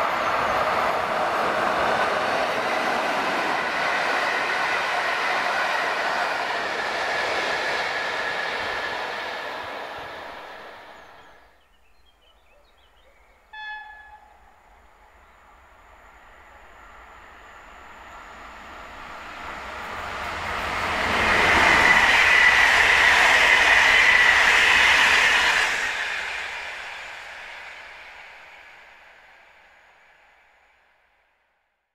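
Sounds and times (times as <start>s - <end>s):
train wheels rushing on rail: 0.0s - 11.6s, 13.6s - 31.1s
train horn blast: 13.5s - 14.6s.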